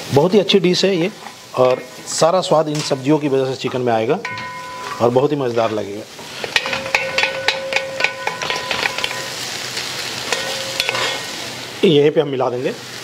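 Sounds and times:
chicken sizzling: 0.0 - 13.0
faint metallic ringing: 1.4 - 5.5, 6.5 - 9.4, 10.3 - 11.2
knocks on steel pot: 6.6 - 9.2
wooden spatula scraping a pot: 10.3 - 11.3.

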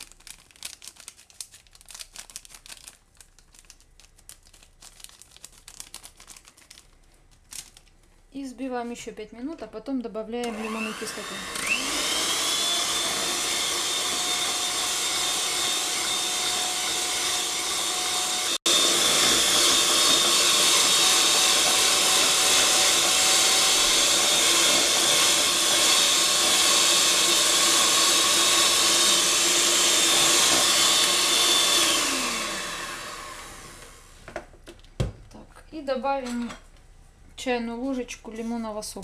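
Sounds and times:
electric mixer motor whine: 10.5 - 34.2.

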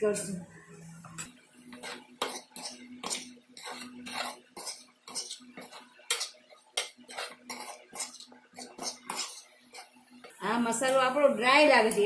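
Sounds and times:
metal spoon scraping a metal pan: 1.7 - 10.1.

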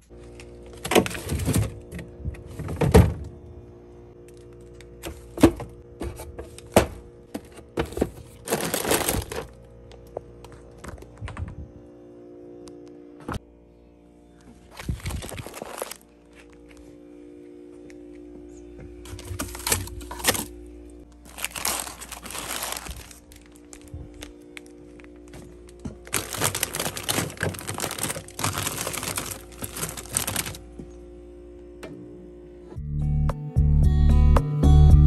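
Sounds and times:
plastic wrappers crinkling: 0.2 - 1.8, 7.8 - 9.6, 14.6 - 16.9, 19.1 - 30.8
items thunking down: 0.6 - 3.3, 4.9 - 9.6, 14.7 - 16.0, 18.8 - 20.6, 21.2 - 31.0
soft background music: 11.8 - 35.0.

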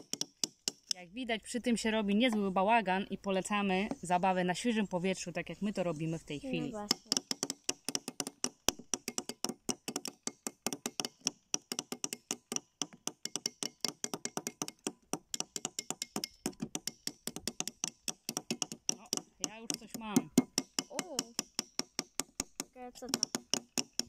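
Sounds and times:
hammers tapping on chisels: 0.0 - 1.0, 2.1 - 2.6, 3.7 - 4.3, 6.8 - 24.0.

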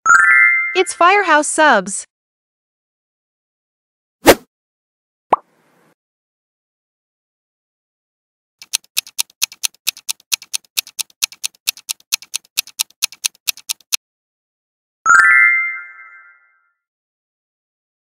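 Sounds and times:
clock ticking: 8.6 - 14.0.

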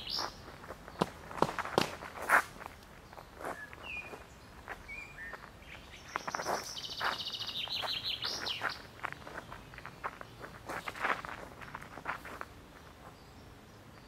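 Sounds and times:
bird whistling and trilling: 0.0 - 0.4, 3.5 - 4.2, 4.9 - 8.8
footsteps on gravel: 0.0 - 13.2.

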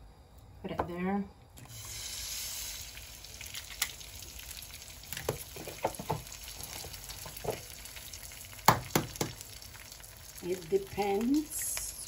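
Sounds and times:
egg sizzling in pan: 1.6 - 12.0
oil crackles and pops: 1.6 - 12.0.

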